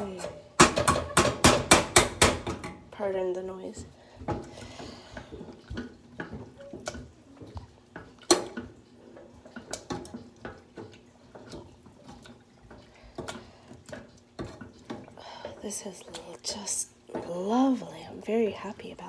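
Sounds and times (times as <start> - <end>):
metal masher knocking pot: 0.2 - 2.8.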